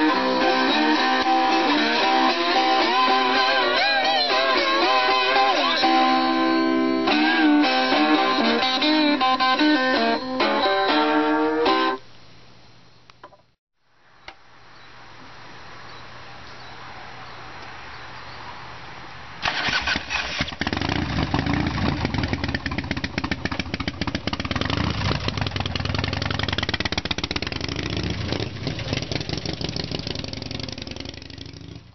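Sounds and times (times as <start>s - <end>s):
blues guitar through amp: 0.0s - 12.0s
motorcycle engine revving: 19.4s - 31.9s.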